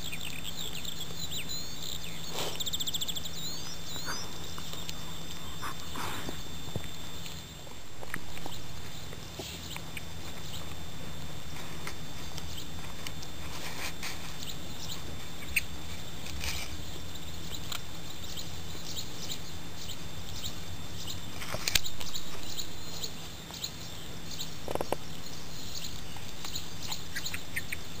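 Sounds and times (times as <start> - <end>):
steady low hum: 0.0 - 28.0
dog chewing beetle crunches: 0.1 - 19.0, 21.3 - 23.7, 24.3 - 25.1.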